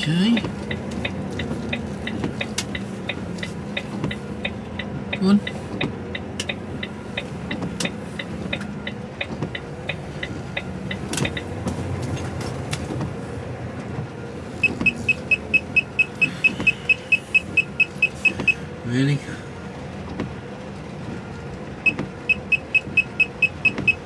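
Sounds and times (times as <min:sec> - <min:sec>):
truck engine and road noise: 0:00.0 - 0:24.0
proximity sensor beeping: 0:14.6 - 0:18.6, 0:21.8 - 0:24.0.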